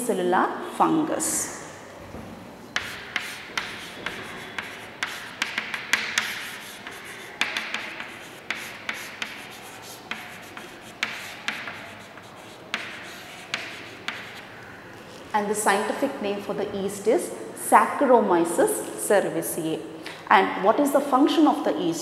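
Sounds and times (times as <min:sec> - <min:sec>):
chalk tapping on board: 0:02.8 - 0:14.4
chalk scratching on chalkboard: 0:02.8 - 0:14.5.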